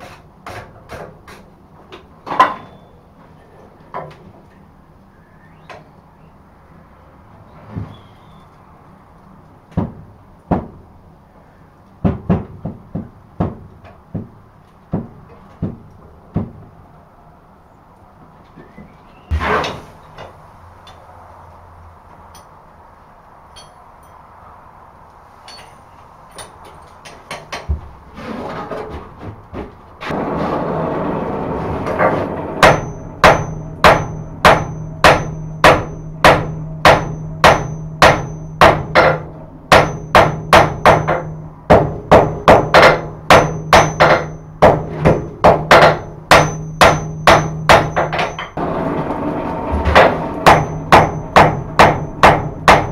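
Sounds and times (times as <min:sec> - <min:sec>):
steady hum: 0:30.1 - 0:52.9
hammer striking on an anvil: 0:32.6 - 0:48.6, 0:49.9 - 0:52.9.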